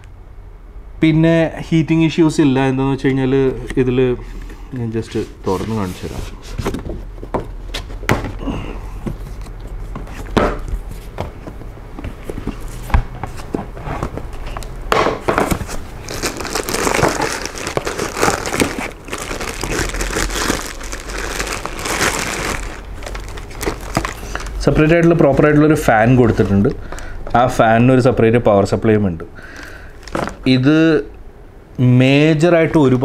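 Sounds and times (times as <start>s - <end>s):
plastic bag crinkling: 15.6s - 24.6s, 29.5s - 30.5s.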